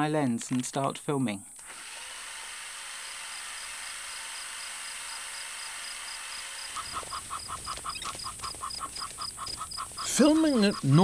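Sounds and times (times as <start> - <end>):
high background hiss: 0.0 - 11.0
rapid short chirping calls: 6.3 - 11.0.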